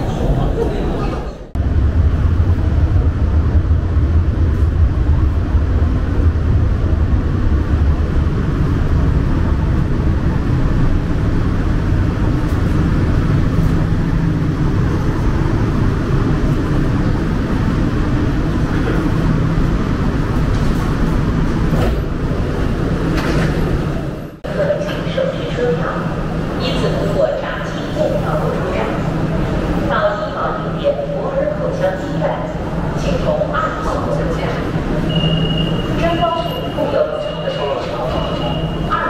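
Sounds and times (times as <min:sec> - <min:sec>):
metro train rumble: 0:00.0 - 0:39.0.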